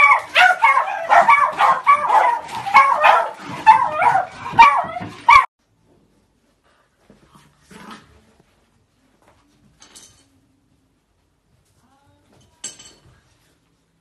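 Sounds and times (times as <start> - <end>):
dogs yipping and barking: 0.0 - 5.5.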